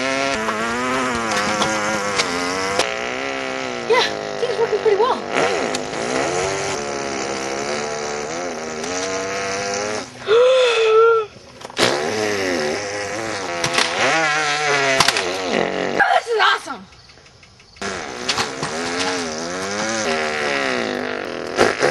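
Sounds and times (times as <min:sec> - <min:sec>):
person imitating scooter engine: 0:00.0 - 0:16.9, 0:17.8 - 0:21.9
person crying out: 0:03.9 - 0:05.2, 0:10.2 - 0:11.3.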